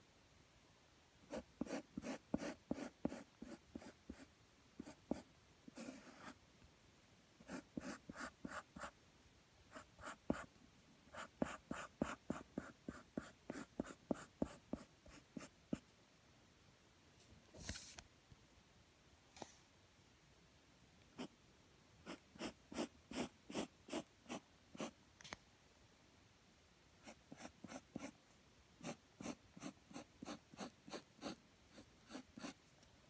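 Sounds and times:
pencil sketching on paper: 1.3s - 6.4s, 7.4s - 8.9s, 9.7s - 10.5s, 11.1s - 15.8s, 22.0s - 24.9s, 27.0s - 28.2s, 28.8s - 32.6s.

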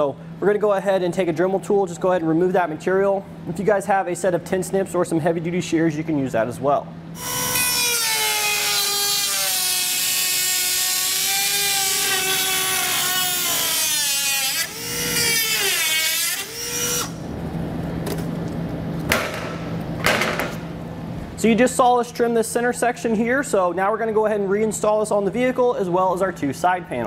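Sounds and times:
rotary tool cutting plastic: 7.2s - 17.2s.

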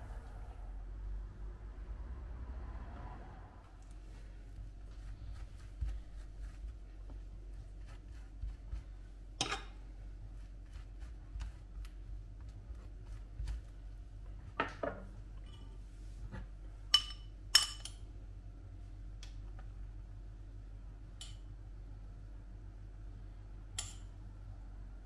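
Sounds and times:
tableware clicks and knocks: 17.0s - 18.0s.

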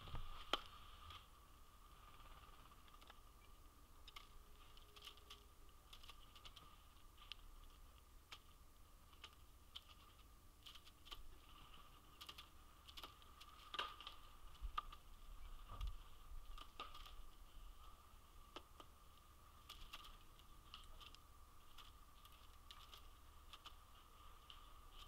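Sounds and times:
faint steady tone: 0.0s - 25.0s
bird bill pecking on wood: 12.1s - 15.1s.

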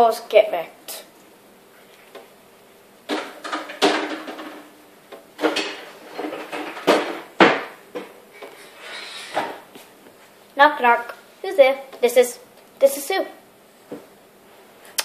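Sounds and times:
hard objects knocking and clattering: 3.1s - 8.2s.

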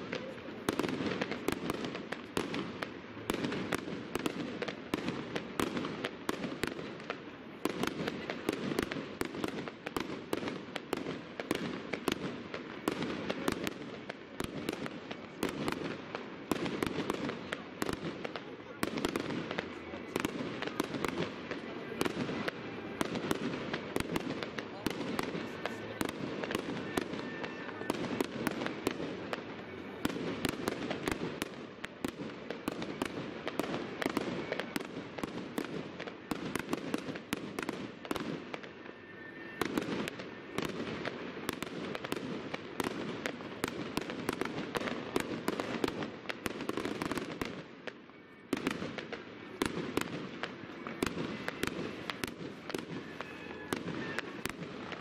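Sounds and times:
fireworks bangs: 0.0s - 55.0s.

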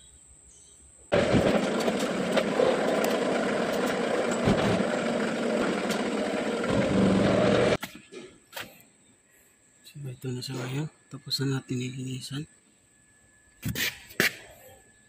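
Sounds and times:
loud mechanical machine noise: 1.1s - 7.8s
low hum: 1.1s - 7.8s.

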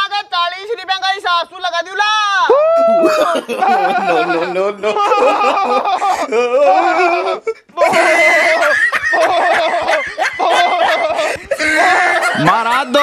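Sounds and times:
theatrical laughter: 2.9s - 13.0s.

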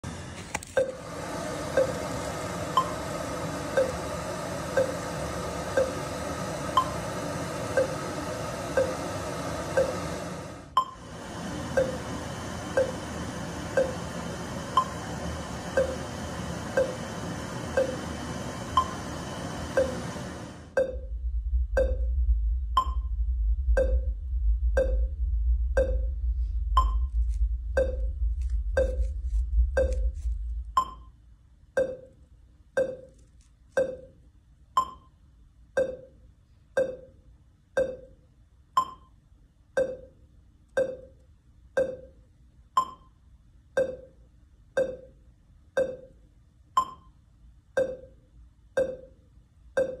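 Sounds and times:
pitched test pips through speakers: 0.7s - 31.2s, 31.8s - 50.0s
deep steady rumble: 0.8s - 31.1s.

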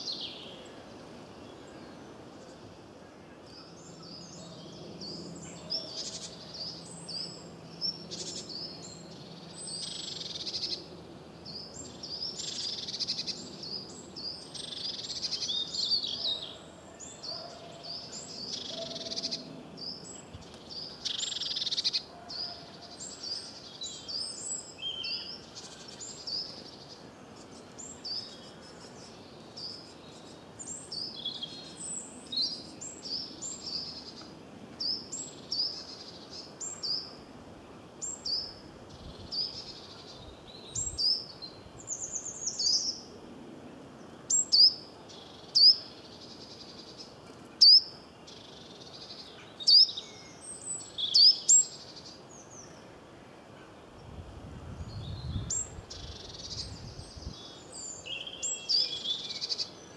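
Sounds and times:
songbirds chirping: 0.0s - 59.9s
sharp bird calls: 11.5s - 27.0s.

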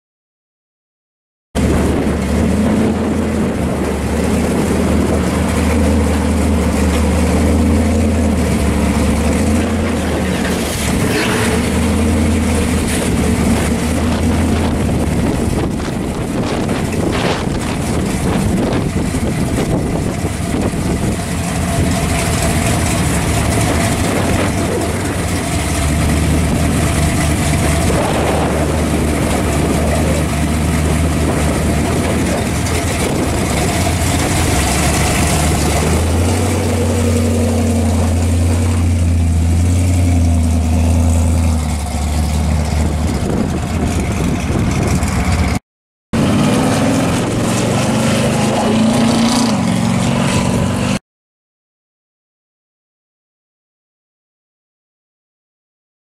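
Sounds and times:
car driving off: 1.6s - 45.6s, 46.2s - 51.0s
car engine idling rumble: 1.6s - 45.6s.

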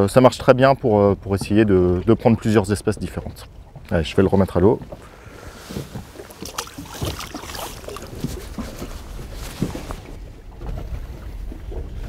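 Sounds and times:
water lapping against boat: 0.0s - 12.0s
small splashes: 4.8s - 10.2s.

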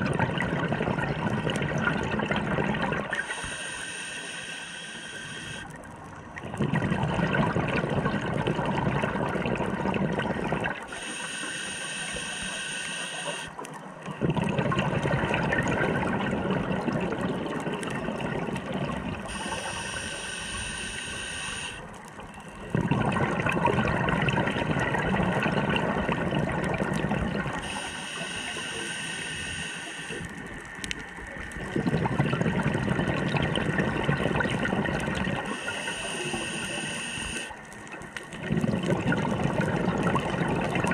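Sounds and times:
exhaled bubbles rushing underwater: 0.0s - 3.6s, 5.5s - 11.2s, 13.3s - 40.9s
regulator inhale hiss: 3.2s - 5.8s, 10.9s - 13.6s, 19.2s - 22.1s, 27.5s - 30.5s, 35.4s - 37.8s.

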